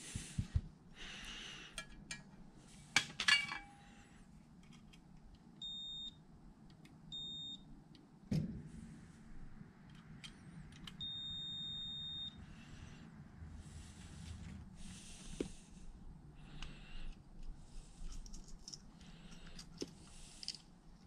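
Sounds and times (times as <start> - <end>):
multimeter continuity beep: 5.6 - 6.2, 7.1 - 7.7, 10.9 - 12.4.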